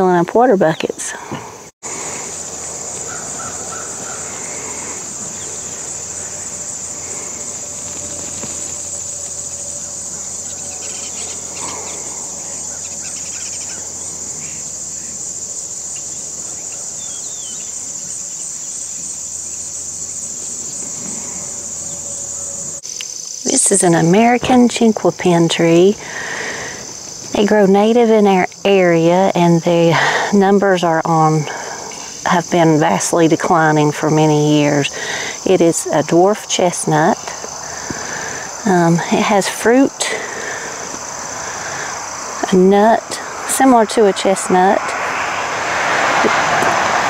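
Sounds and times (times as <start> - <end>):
insects chorus: 0.0 - 47.0
faint bird calls: 2.0 - 15.2.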